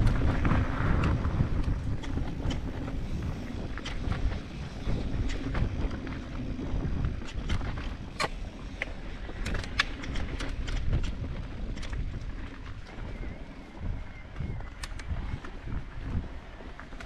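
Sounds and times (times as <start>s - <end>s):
bike ticking and rattling: 0.0s - 17.0s
bike tyres rumbling on dirt: 0.0s - 17.0s
wind buffeting microphone: 0.0s - 17.0s.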